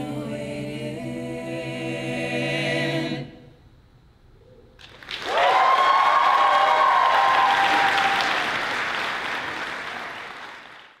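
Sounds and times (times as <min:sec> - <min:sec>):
audience applauding and cheering: 0:04.8 - 0:11.0
held whoops: 0:05.2 - 0:08.6.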